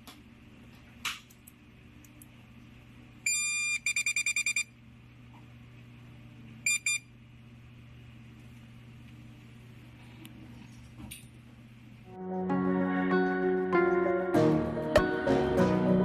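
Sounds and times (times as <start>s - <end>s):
electronic beeper beeps: 3.3s - 4.7s, 6.7s - 7.1s.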